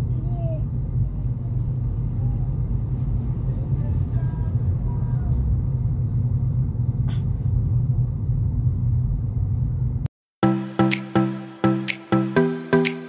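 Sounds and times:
car road rumble inside cabin: 0.0 - 10.1.

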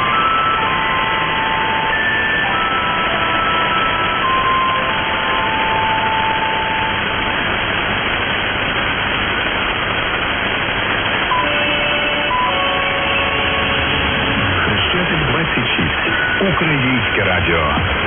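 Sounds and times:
radio static hiss: 0.0 - 18.0
faint held radio tones: 11.3 - 18.0.

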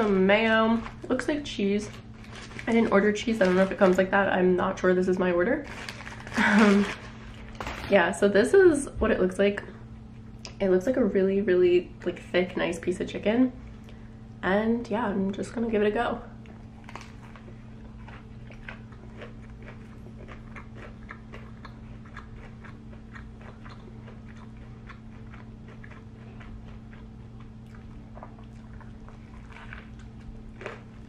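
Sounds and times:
person chewing sandwich: 16.4 - 31.0
biting into sandwich: 16.5 - 31.0.

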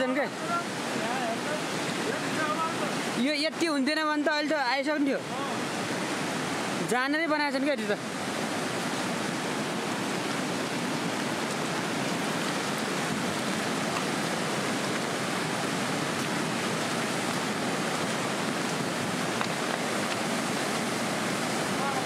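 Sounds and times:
river rushing in flood: 0.0 - 22.0.

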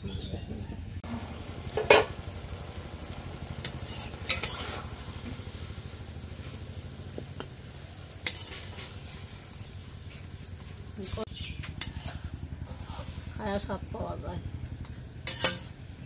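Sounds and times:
low steady hum: 0.0 - 16.0
stirring in pot: 1.0 - 11.2.

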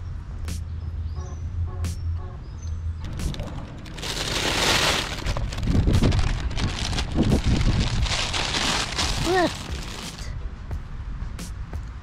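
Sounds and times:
wind rumble on microphone: 0.0 - 12.0
plastic bag crinkling: 3.0 - 10.3.

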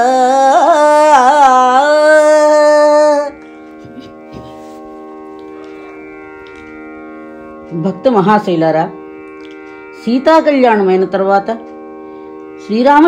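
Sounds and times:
woman singing long note: 0.0 - 3.4
instrumental drone: 0.0 - 13.0.

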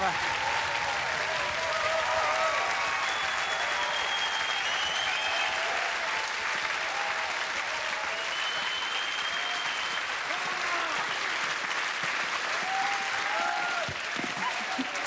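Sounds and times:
audience clapping: 0.0 - 15.0.

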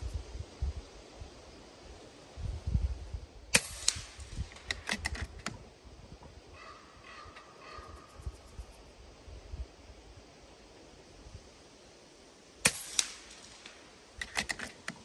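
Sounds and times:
air rifle shot: 3.5 - 5.0, 12.6 - 13.8
small clicks: 3.8 - 5.6, 12.9 - 15.0.

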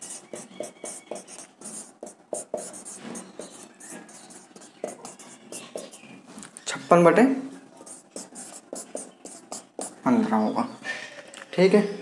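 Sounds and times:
pen scratching while writing: 0.0 - 6.1, 7.8 - 10.0.

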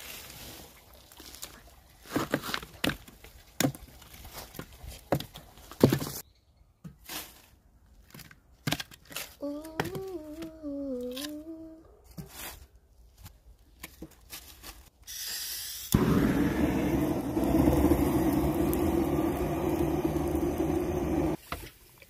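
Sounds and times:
person humming: 9.4 - 11.8
gas hiss: 15.1 - 21.4
gas torch flame rushing: 15.9 - 21.4.

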